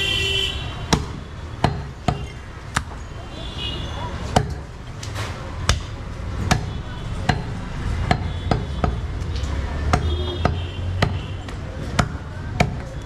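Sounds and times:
cleaver chopping meat and bone: 0.9s - 3.0s, 4.3s - 4.7s, 5.6s - 13.0s.

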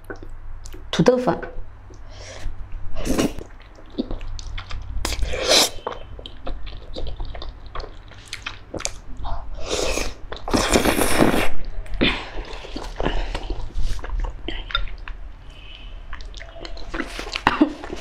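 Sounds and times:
person slurping noodles: 2.3s - 3.5s, 5.0s - 5.9s, 9.6s - 14.6s.

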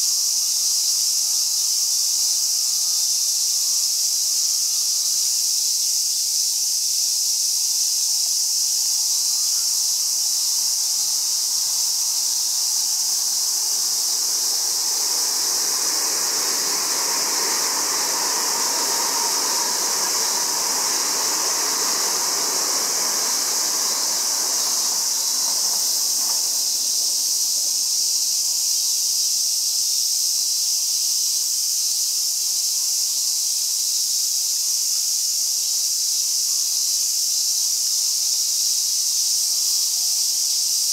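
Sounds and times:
cicadas chorus: 0.0s - 40.9s
electric train passing on rails: 9.3s - 28.0s.

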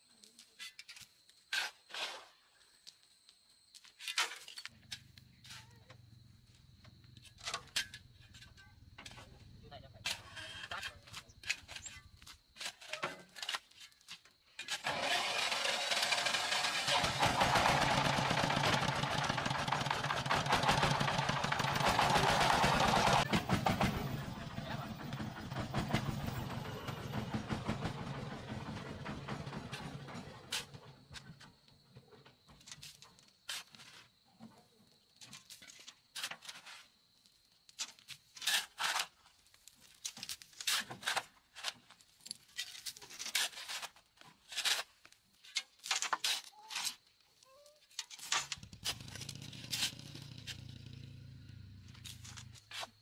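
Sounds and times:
shovel scraping stony soil: 0.4s - 2.4s, 10.0s - 17.2s, 37.8s - 47.0s, 48.0s - 50.6s, 52.0s - 53.0s.

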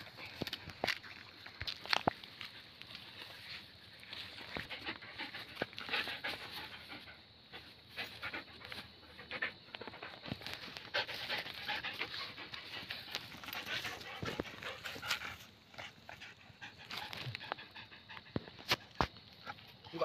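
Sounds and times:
dog panting: 4.2s - 18.7s.

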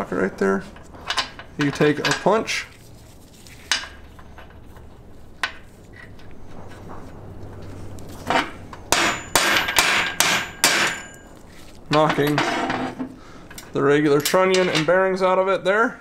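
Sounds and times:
hammer striking metal punch: 8.9s - 11.2s.

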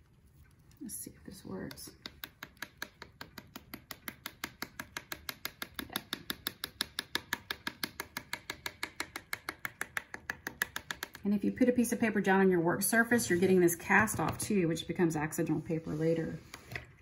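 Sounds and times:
paintbrush tapping against a jar: 1.6s - 11.2s.

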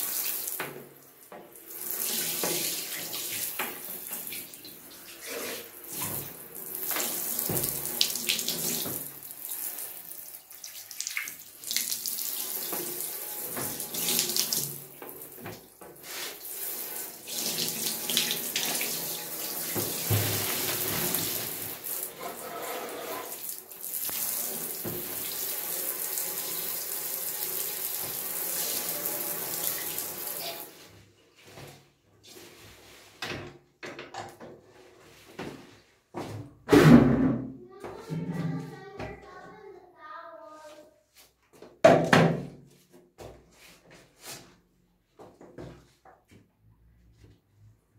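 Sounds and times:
shower spraying into bathtub: 0.0s - 0.8s, 1.6s - 30.8s.

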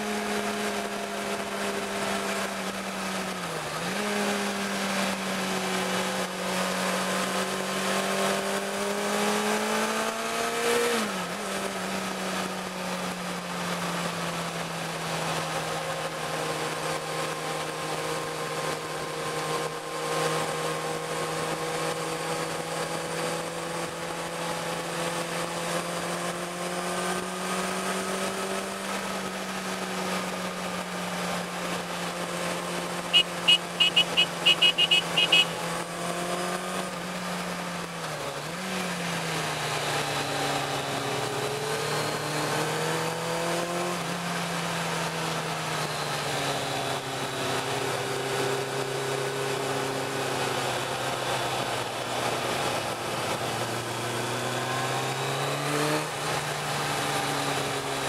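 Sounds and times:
motorcycle engine running: 29.2s - 36.2s
horn short beeps: 33.1s - 35.8s.

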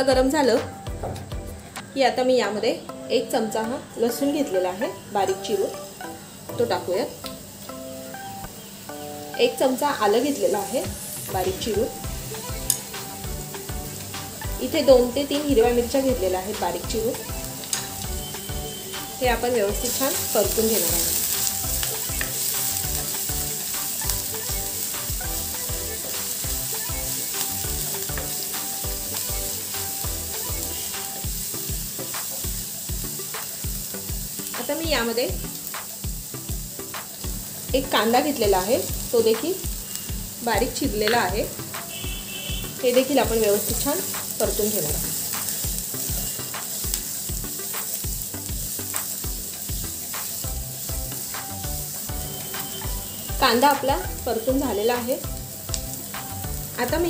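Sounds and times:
background music with steady beat: 0.0s - 57.0s
food sizzling in hot oil: 0.0s - 57.0s
spatula stirring in a pan: 19.7s - 34.4s.

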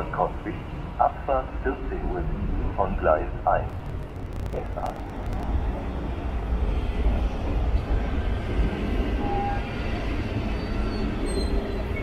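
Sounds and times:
electric train rumbling: 0.0s - 12.0s.

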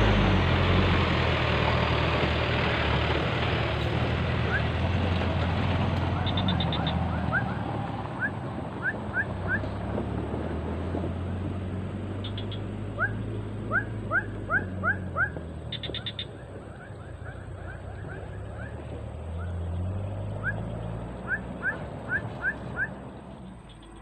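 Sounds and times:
animal squeaky calls: 6.2s - 7.6s.

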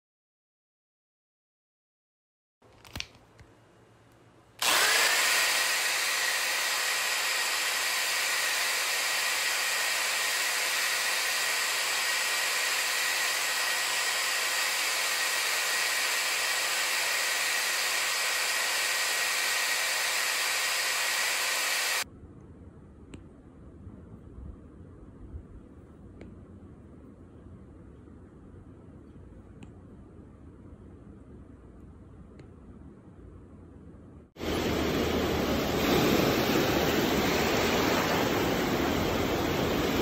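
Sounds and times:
small electric motor whining: 4.6s - 22.0s.

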